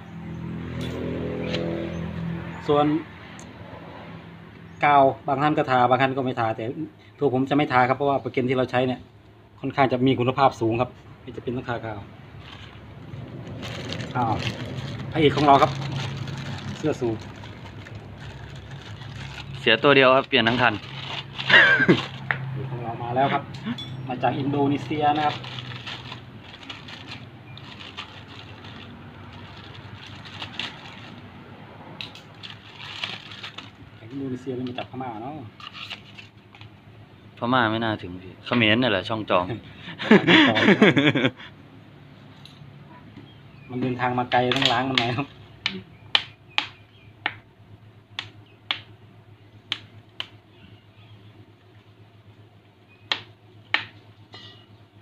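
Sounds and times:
low background hum: 4.5 - 55.0
plastic wrapping crinkling: 12.3 - 22.4, 24.7 - 31.3, 32.1 - 33.8.

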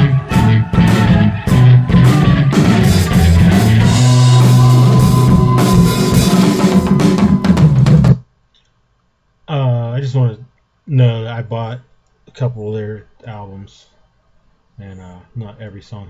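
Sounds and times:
psychedelic rock music: 0.0 - 8.2.

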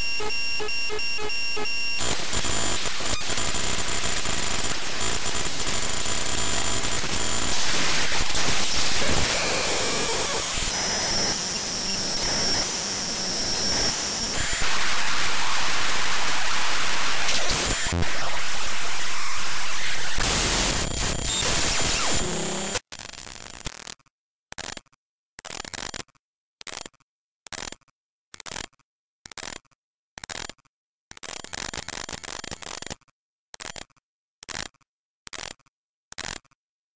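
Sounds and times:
dense hiss and static: 0.0 - 22.8.

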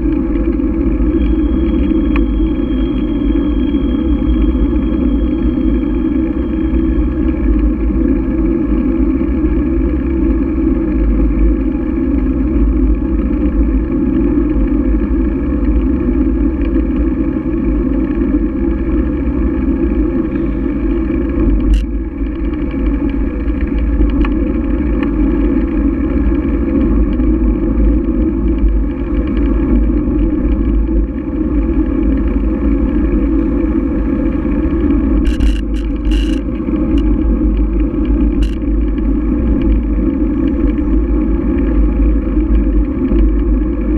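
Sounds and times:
bicycle tyre rumble on asphalt: 0.0 - 43.9
wind: 0.0 - 43.9
sharp click: 35.2 - 36.4
rattling clicks: 35.2 - 37.1, 38.4 - 38.6.

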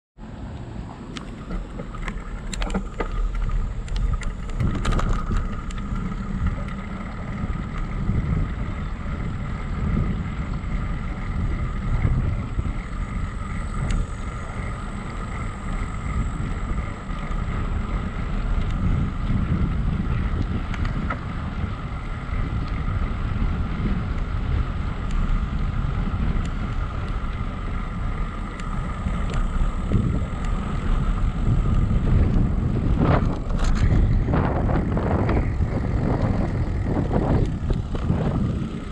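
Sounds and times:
faint steady whine: 0.2 - 38.9
wind buffeting microphone: 0.6 - 38.9
bicycle rattling on brick: 1.2 - 38.9.

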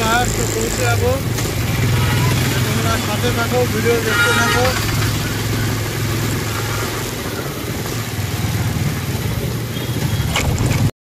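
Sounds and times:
motorcycle engine running: 0.0 - 10.9
wind rush on microphone: 5.8 - 10.9.

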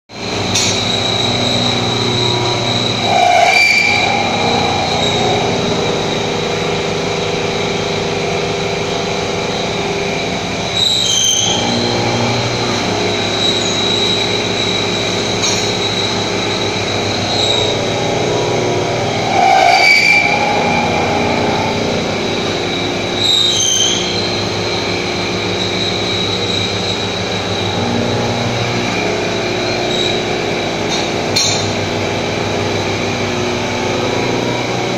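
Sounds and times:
milling machine running: 0.1 - 34.9
high-pitched flares: 0.4 - 8.6, 11.0 - 30.4.

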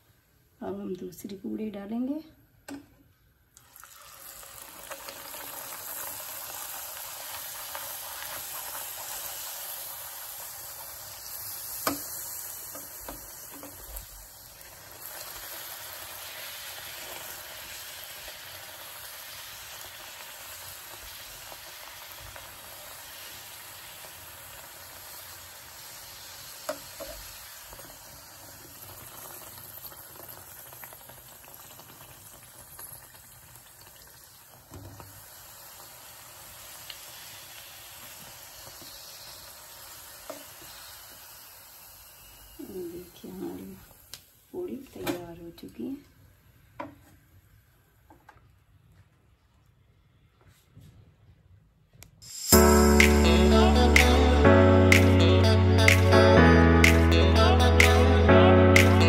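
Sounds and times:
dough sizzling in hot oil: 3.6 - 44.9, 52.2 - 53.0.

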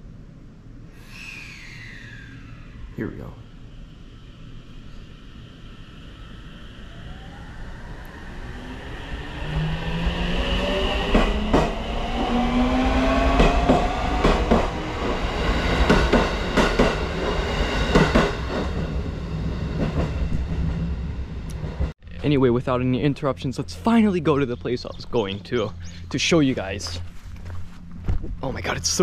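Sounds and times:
electric train motor whine: 1.0 - 21.9.

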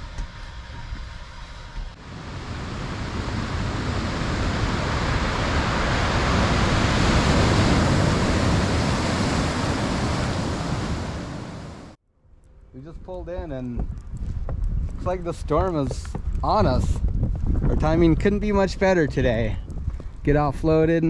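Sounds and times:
ocean waves surf: 1.9 - 12.0.

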